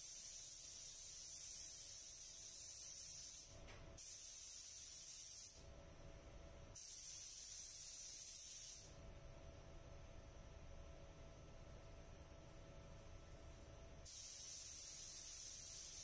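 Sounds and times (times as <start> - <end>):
paint spray gun hissing: 0.0 - 5.6, 6.8 - 8.9, 14.0 - 16.0
faint steady hum: 4.6 - 16.0.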